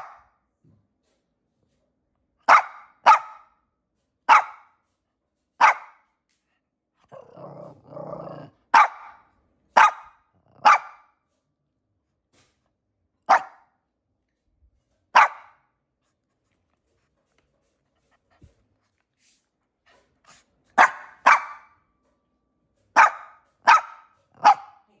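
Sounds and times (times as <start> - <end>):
small dog barking: 0.0 - 0.3, 2.4 - 3.6, 4.3 - 4.7, 5.6 - 6.0, 8.3 - 9.2, 9.8 - 11.1, 13.3 - 13.7, 15.2 - 15.6, 20.8 - 21.8, 23.0 - 24.9.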